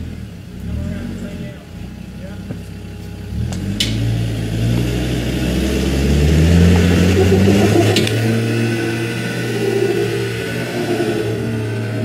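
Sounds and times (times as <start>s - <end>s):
engine revving under load: 0.0s - 12.0s.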